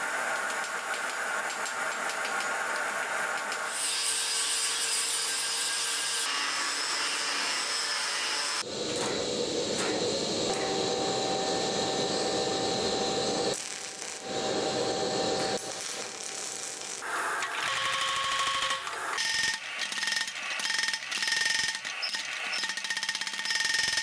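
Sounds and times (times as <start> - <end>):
power tool running: 8.3 - 23.0
welding arc: 12.7 - 24.0.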